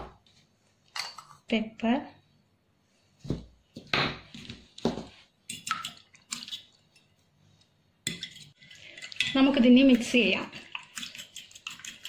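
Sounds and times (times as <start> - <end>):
fork stirring eggs: 8.0 - 12.0.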